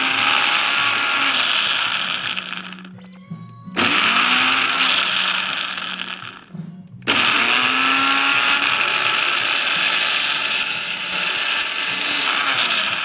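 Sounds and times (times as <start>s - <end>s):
blender motor running: 0.0s - 3.0s, 3.8s - 13.0s.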